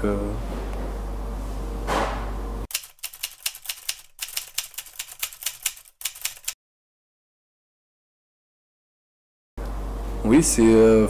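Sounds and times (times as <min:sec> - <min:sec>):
typewriter key strikes: 0:02.7 - 0:06.6.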